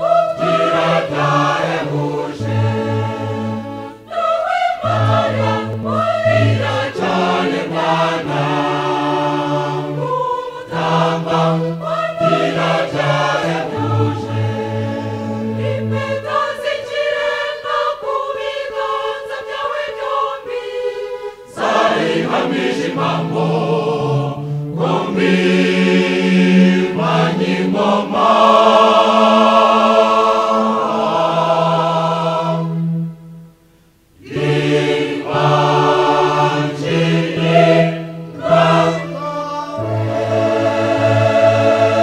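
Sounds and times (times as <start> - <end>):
choir singing in harmony: 0.0 - 42.0.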